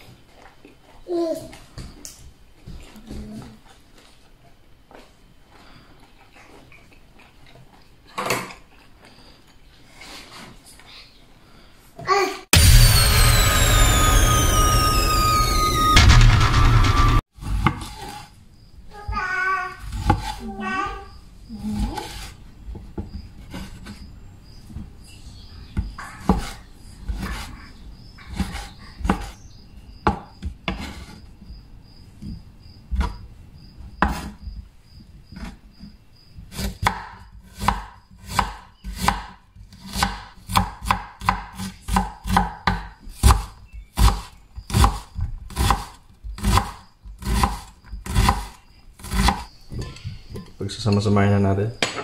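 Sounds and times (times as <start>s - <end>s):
knife chopping on wooden board: 34.0s - 34.4s, 36.5s - 49.5s.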